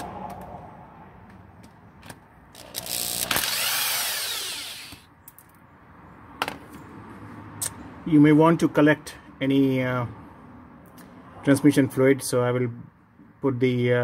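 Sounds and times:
drill clicks: 2.5s - 5.1s
power drill spinning: 2.6s - 5.1s.

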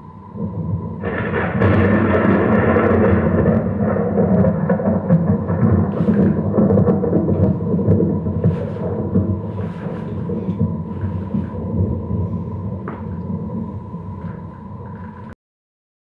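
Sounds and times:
faint steady high tone: 0.0s - 1.1s
deep continuous rumble: 0.0s - 15.4s.

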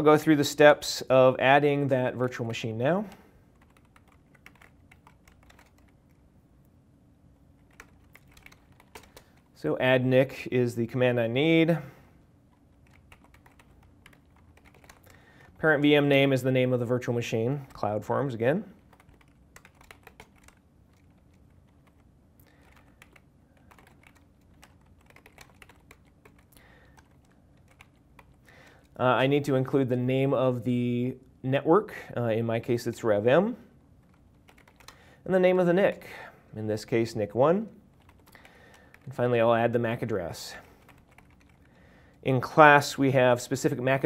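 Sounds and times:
typing on computer keyboard: 3.1s - 6.2s, 7.6s - 9.5s, 12.7s - 15.2s, 18.9s - 28.9s, 34.0s - 35.0s, 38.0s - 39.1s, 40.6s - 41.8s.

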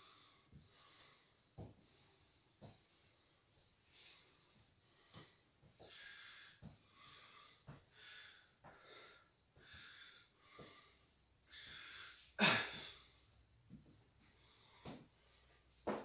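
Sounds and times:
man panting: 0.0s - 2.4s, 4.0s - 13.5s.

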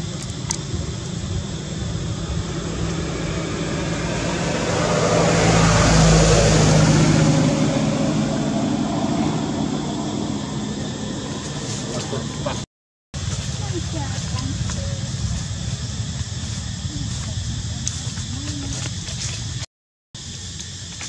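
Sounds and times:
vehicle passing by: 1.2s - 12.6s.

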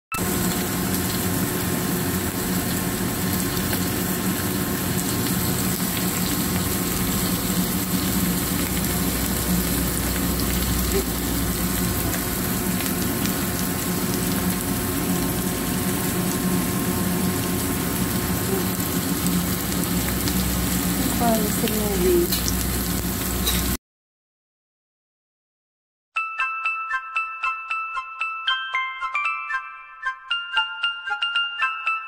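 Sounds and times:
food frying in a pan: 0.2s - 23.8s.

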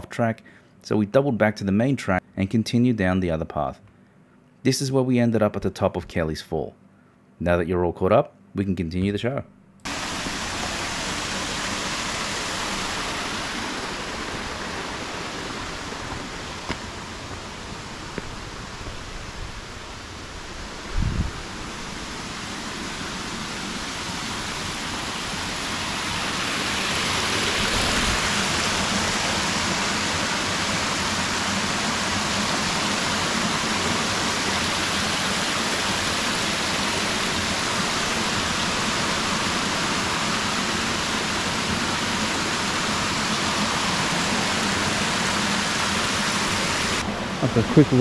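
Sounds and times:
water rushing over rock ledges: 9.9s - 48.0s.

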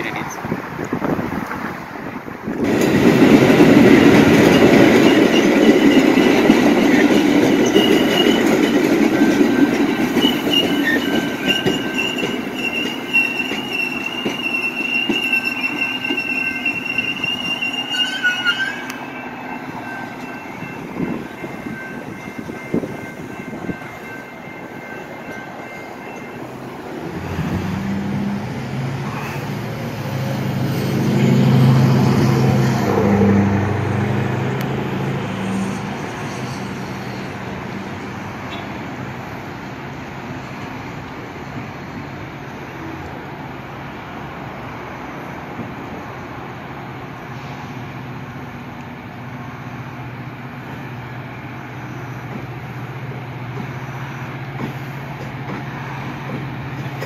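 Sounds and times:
train rolling rumble: 0.0s - 57.0s
steel wheels squealing: 4.2s - 22.4s, 35.4s - 37.4s.

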